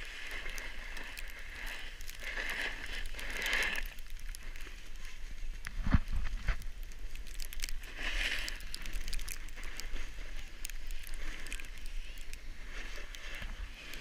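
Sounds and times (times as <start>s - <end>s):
snowboard scraping over snow: 0.0s - 14.0s
wind rumble on microphone: 4.1s - 14.0s.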